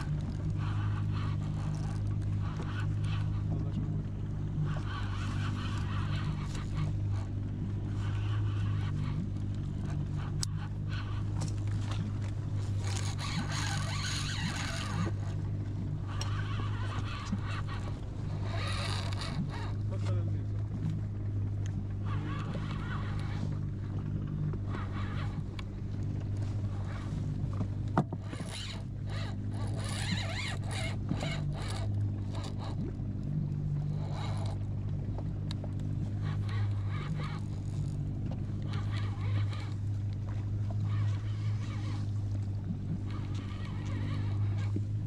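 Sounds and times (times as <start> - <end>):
boat motor idling: 0.0 - 45.0
fishing reel rattling: 12.7 - 15.2, 16.1 - 19.8, 28.2 - 32.8, 34.0 - 34.6.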